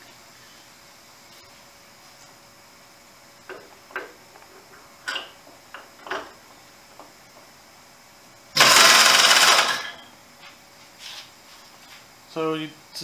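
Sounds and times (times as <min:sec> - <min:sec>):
pneumatic ratchet running: 0:08.6 - 0:09.9.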